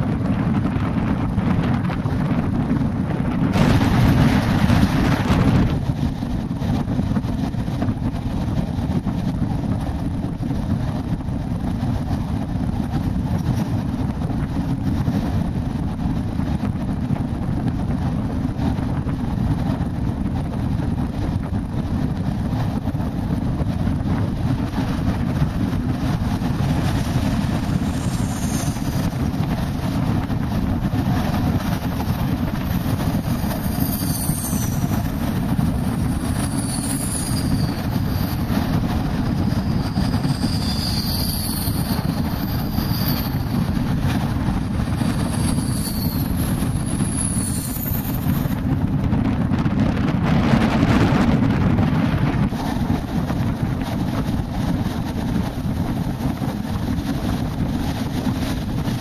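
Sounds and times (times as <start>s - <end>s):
rushing air: 0.0s - 59.0s
train wheels rumbling on rails: 0.0s - 59.0s
thin high squeals: 33.3s - 38.7s, 39.3s - 43.7s, 45.0s - 48.5s.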